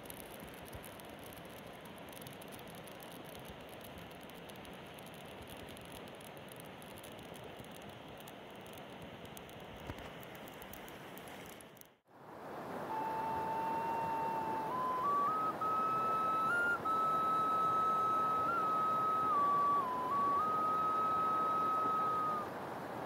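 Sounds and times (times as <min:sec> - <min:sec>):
small fire crackling: 0:00.0 - 0:12.2
flowing river water: 0:00.0 - 0:23.0.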